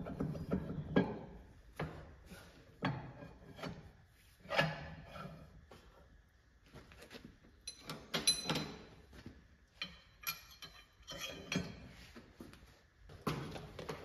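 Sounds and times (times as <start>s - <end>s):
metal clinks and taps: 7.6s - 9.0s, 9.7s - 11.8s.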